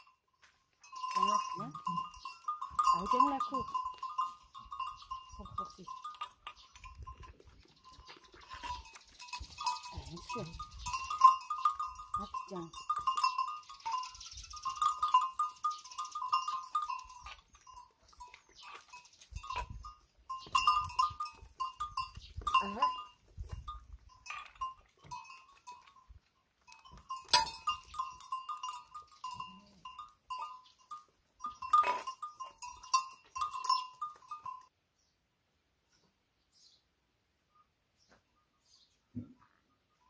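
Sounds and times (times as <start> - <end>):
goat bell clinking: 0.0 - 34.8.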